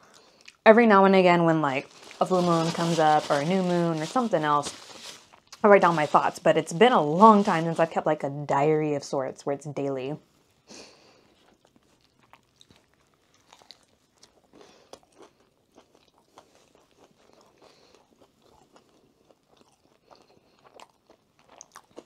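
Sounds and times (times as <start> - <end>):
crunching and chewing food: 0.0 - 0.6, 1.7 - 6.4, 11.1 - 22.0.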